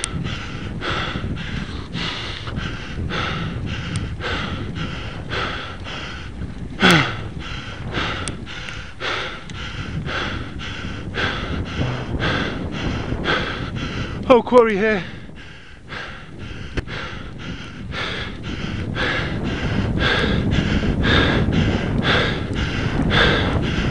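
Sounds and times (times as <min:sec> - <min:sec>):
gasping breath with groan: 0:00.0 - 0:14.2, 0:15.0 - 0:23.9
low rumble: 0:00.0 - 0:14.3
man panting hard: 0:00.0 - 0:23.9.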